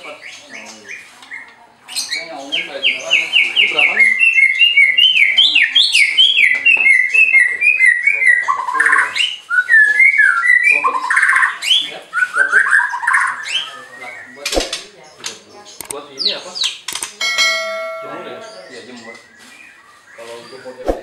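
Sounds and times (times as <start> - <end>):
bird chattering: 0.0 - 21.0
bird singing whistled song: 2.9 - 14.4.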